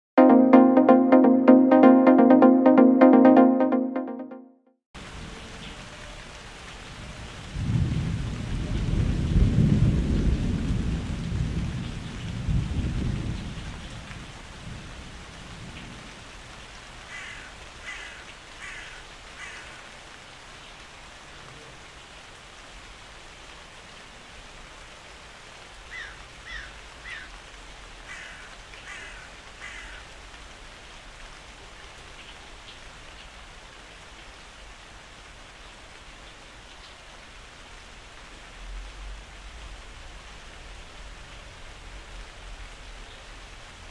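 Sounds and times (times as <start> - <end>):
steady rain falling: 5.0 - 43.9
roll of thunder: 7.4 - 16.0.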